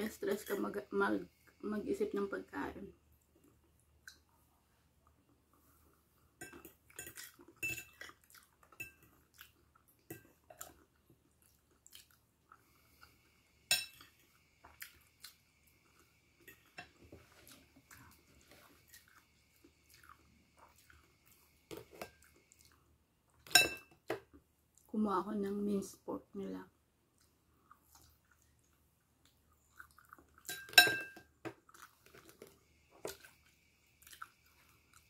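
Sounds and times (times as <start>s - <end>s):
chewing: 5.0s - 13.2s, 14.0s - 23.5s, 27.1s - 30.8s, 31.5s - 35.0s
fork clinking against bowl: 6.4s - 8.1s.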